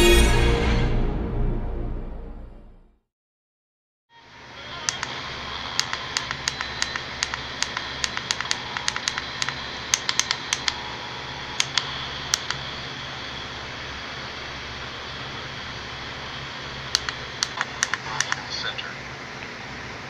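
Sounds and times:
steady radio hiss: 4.2s - 20.0s.

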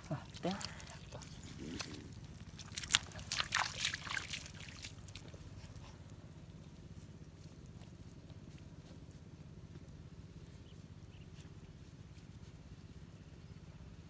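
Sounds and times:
low steady rumble: 0.0s - 14.0s.

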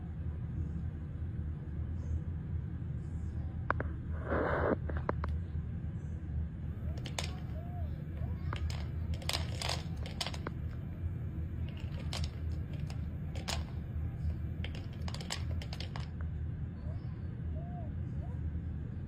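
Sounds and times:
steady low hum: 0.0s - 19.0s
cat crunching dry kibble: 7.0s - 7.6s, 8.4s - 11.0s, 11.6s - 16.2s.

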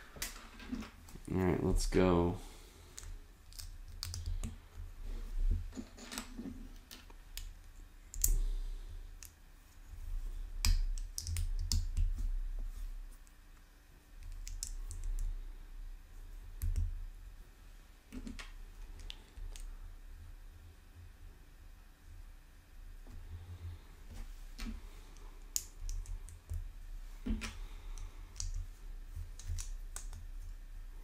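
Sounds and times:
plastic bricks clicking together: 14.2s - 15.2s.

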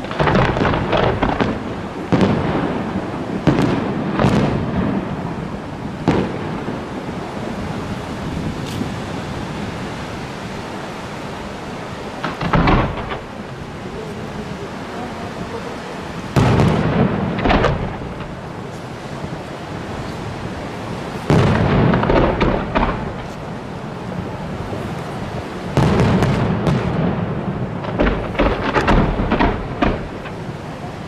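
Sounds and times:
firework shells bursting: 0.0s - 2.7s, 12.2s - 13.6s, 16.3s - 18.9s, 21.1s - 23.6s, 25.8s - 30.6s
sharp firework cracks: 0.0s - 7.0s, 12.2s - 13.6s, 16.3s - 18.9s, 21.1s - 23.6s, 25.7s - 30.6s.

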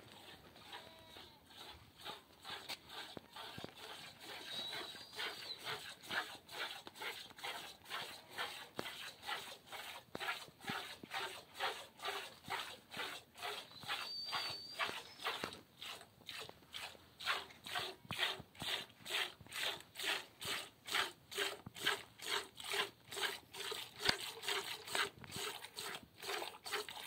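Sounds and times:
milk squirting into plastic container: 18.1s - 27.0s.

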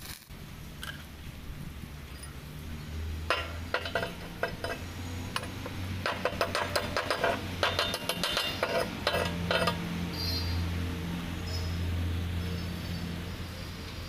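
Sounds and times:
steady low hum: 0.3s - 13.2s
chipping tool clinking on metal: 3.2s - 10.4s.

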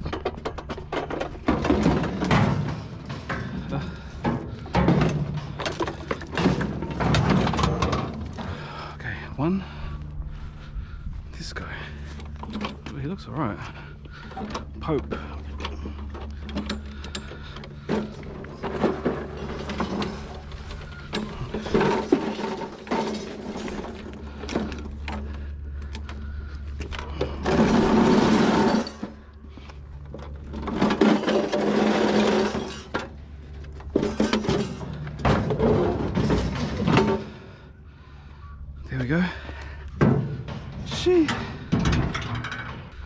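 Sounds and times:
lawnmower rattling and knocking: 0.0s - 8.8s, 12.0s - 37.4s
scraping and clatter: 0.0s - 8.8s, 12.0s - 37.6s, 39.3s - 43.0s
lawnmower rolling over pavement: 0.0s - 8.9s, 12.0s - 37.6s.

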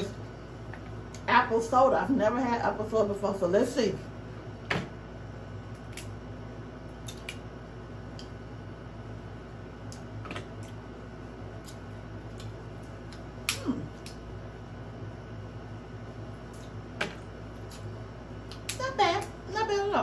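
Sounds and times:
steady low hum: 0.0s - 20.0s
crab shell cracking: 5.7s - 6.2s, 7.0s - 7.5s, 17.6s - 18.8s.

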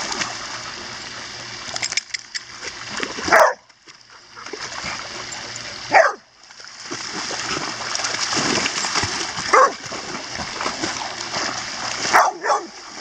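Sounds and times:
dogs splashing through water: 0.0s - 13.0s
dog barking: 3.3s - 3.6s, 5.9s - 6.2s, 9.5s - 9.8s, 12.1s - 12.7s.

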